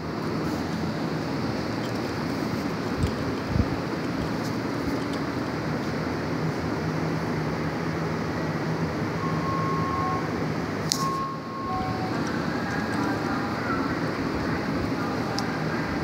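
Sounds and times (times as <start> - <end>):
mechanical rumble: 0.0 - 6.8.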